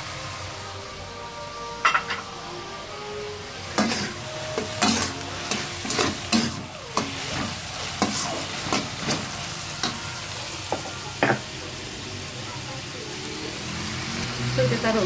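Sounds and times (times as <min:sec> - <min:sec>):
food sizzling: 0:00.0 - 0:15.0
spatula scraping a pan: 0:03.7 - 0:10.0.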